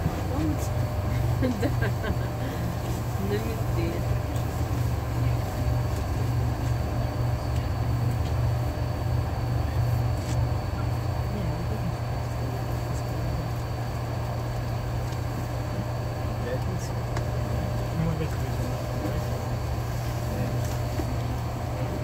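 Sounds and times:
road noise: 0.0 - 11.5
bus engine drone: 0.0 - 22.0.

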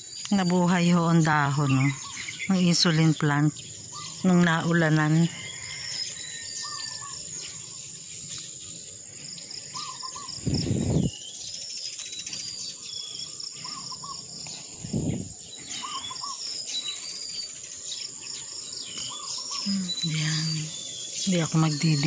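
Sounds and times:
insect drone: 0.0 - 22.0
high bird chirps: 9.6 - 22.0.

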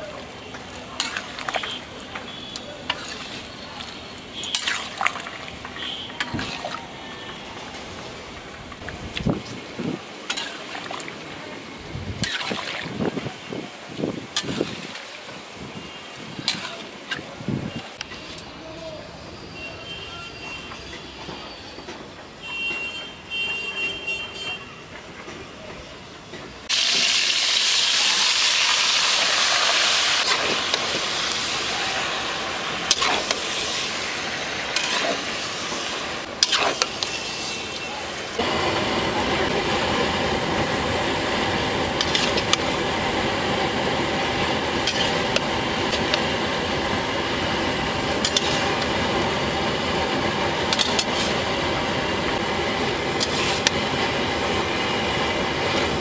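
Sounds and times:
chicken sizzling in hot oil: 0.0 - 8.0, 12.2 - 13.5, 14.2 - 17.2, 26.7 - 56.0
metal spatula scraping a pan: 2.8 - 5.0, 14.4 - 14.9, 16.4 - 16.9, 32.9 - 33.7, 34.7 - 37.9, 42.0 - 42.6, 44.8 - 46.2, 48.2 - 48.9, 50.7 - 51.4, 53.2 - 53.8.

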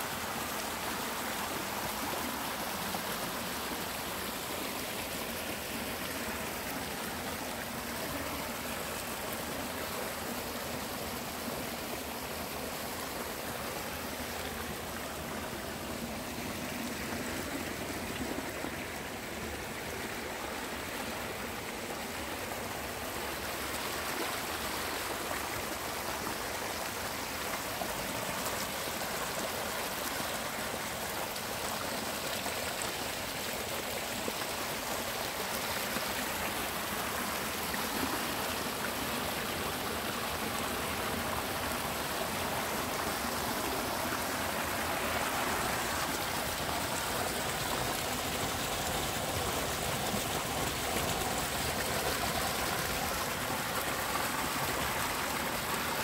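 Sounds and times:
water pouring over spillway: 32.5 - 56.0.

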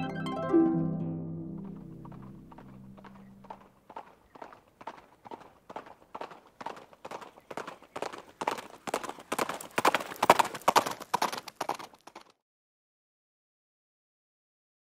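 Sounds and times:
clip-clop hoofbeats: 1.6 - 12.4.

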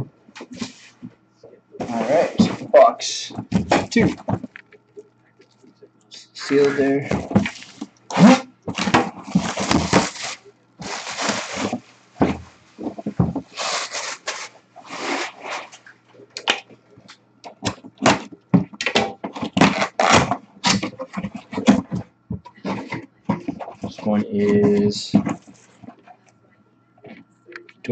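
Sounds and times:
plastic wrap tearing and crinkling: 6.4 - 15.9, 19.5 - 21.6
cardboard flap scraping and clicking: 6.5 - 15.8, 19.2 - 24.0.

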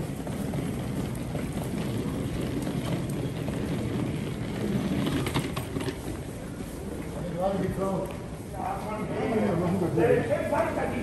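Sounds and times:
wheeled suitcase rolling: 0.0 - 8.1
station concourse rumble: 0.0 - 11.0.

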